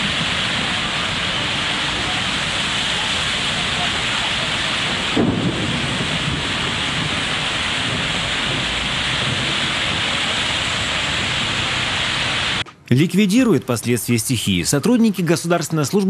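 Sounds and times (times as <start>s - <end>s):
cars splashing through water: 0.0s - 12.6s
rain: 0.0s - 12.6s
wind buffeting microphone: 0.0s - 12.6s.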